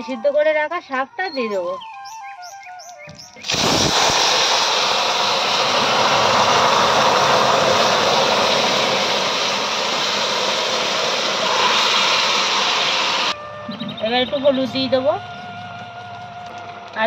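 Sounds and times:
food sizzling in hot oil: 3.4 - 13.4.

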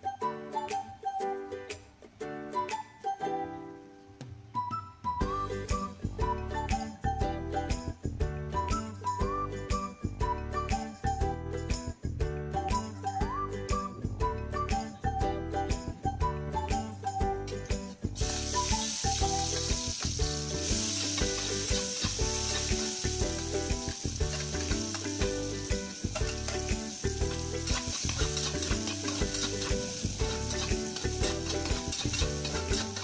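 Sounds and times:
onion sizzling in hot oil: 18.2 - 33.0
spatula stirring in a wok: 18.3 - 33.0.

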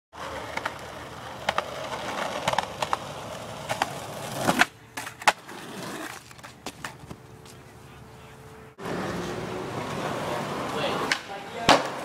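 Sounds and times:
skateboard wheels rolling on concrete: 0.1 - 12.0
skateboard clacking on ground: 0.2 - 7.6, 9.8 - 12.0.

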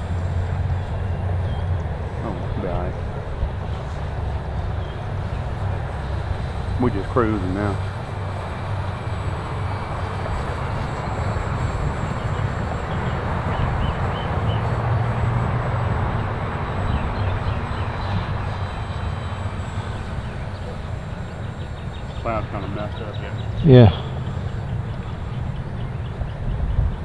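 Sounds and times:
model plane motor droning: 0.0 - 27.0
wind noise on microphone: 25.3 - 27.0.

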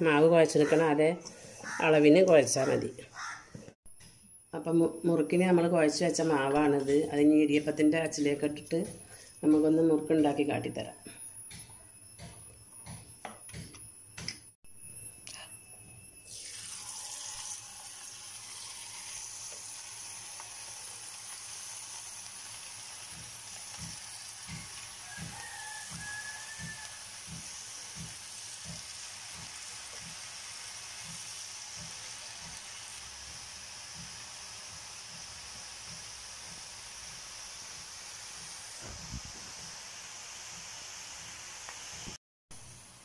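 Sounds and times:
dough sizzling in hot oil: 16.1 - 43.0.

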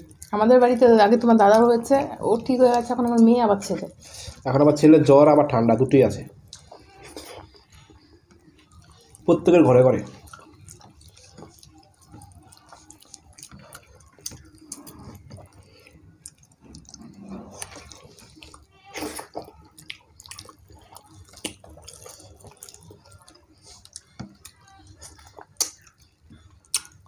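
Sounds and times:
wet smacking of eating: 6.4 - 27.0.

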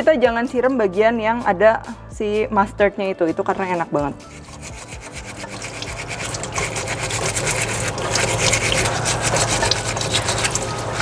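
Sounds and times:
steel wool scraping shell: 3.6 - 11.0
running tap water: 4.2 - 11.0.

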